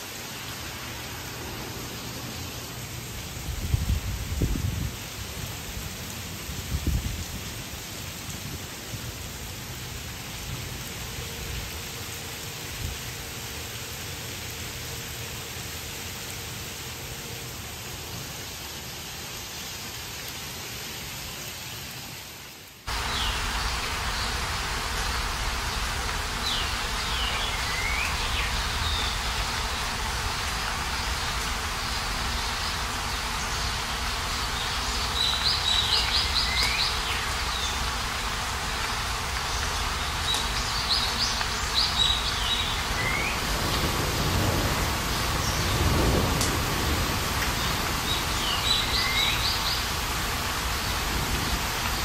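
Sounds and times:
rain and hail on pavement: 0:00.0 - 0:52.0
birds chirping: 0:22.9 - 0:52.0.

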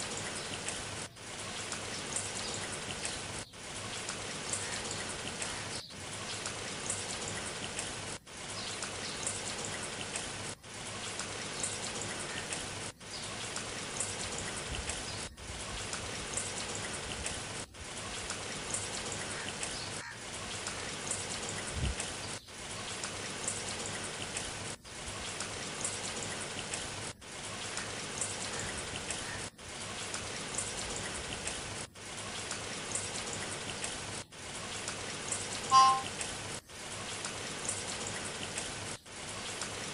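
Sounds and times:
steady hiss of falling rain: 0:00.0 - 0:39.9.

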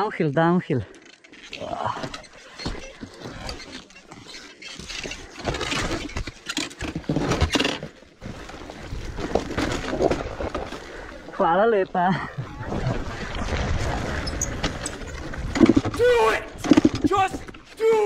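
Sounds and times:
dirt bike rattling over bumps: 0:13.0 - 0:17.7.

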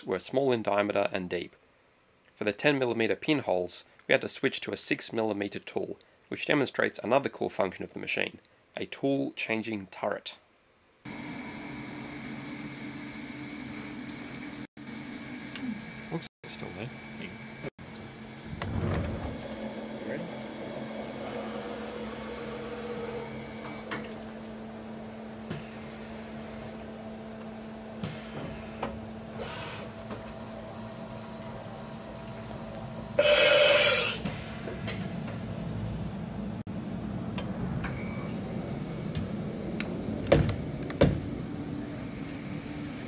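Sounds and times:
milling machine humming: 0:11.1 - 0:43.0.

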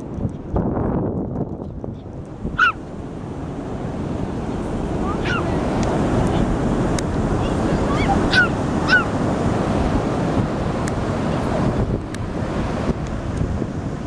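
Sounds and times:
wind on microphone: 0:00.0 - 0:14.0
ocean surf: 0:02.0 - 0:14.0
small dog yapping: 0:02.6 - 0:02.8, 0:05.2 - 0:05.5, 0:07.9 - 0:09.1.

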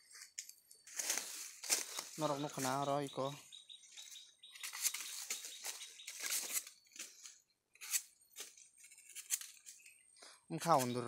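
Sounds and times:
dry leaves rustling: 0:00.1 - 0:07.3
dry bamboo sheaths tearing: 0:04.6 - 0:09.9.

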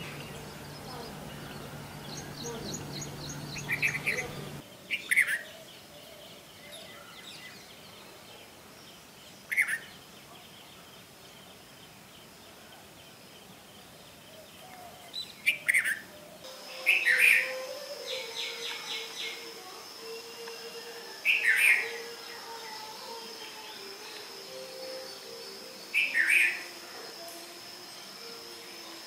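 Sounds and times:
bulbul calling: 0:00.0 - 0:05.4, 0:15.4 - 0:19.5.

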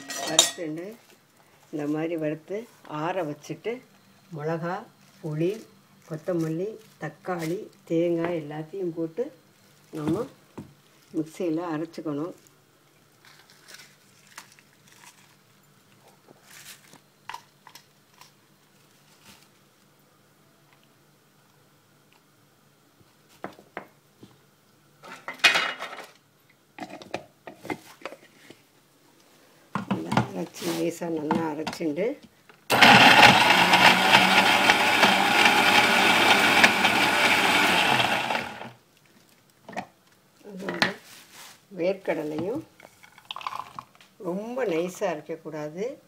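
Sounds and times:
mixer grinder whirring: 0:32.7 - 0:38.8.

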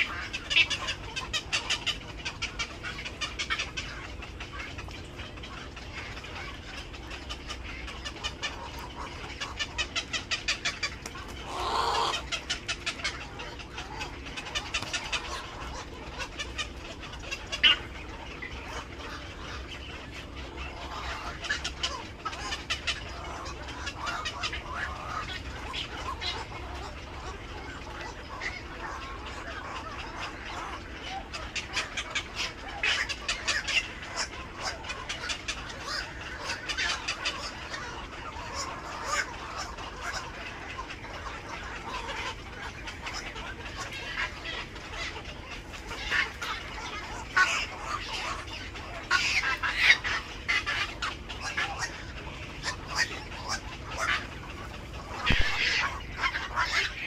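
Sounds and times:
heron nestlings begging calls: 0:55.3 - 0:56.0.

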